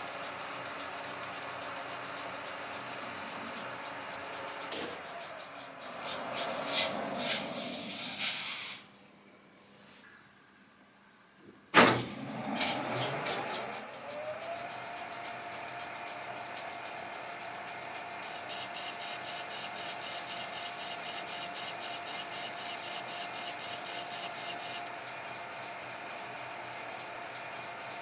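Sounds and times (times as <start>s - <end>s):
fast regular ticking of cutting tool: 0.0s - 7.3s, 12.3s - 28.0s
lathe motor whine: 0.0s - 8.0s, 12.0s - 28.0s
lathe starting clunk: 4.6s - 5.2s, 11.8s - 14.0s.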